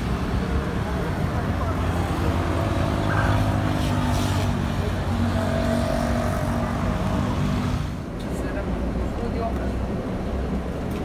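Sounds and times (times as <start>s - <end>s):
car and motorbike engines passing: 0.0s - 11.0s.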